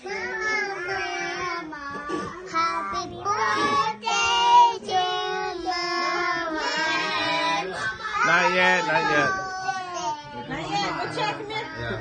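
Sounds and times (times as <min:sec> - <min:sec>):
children singing: 0:00.0 - 0:08.4.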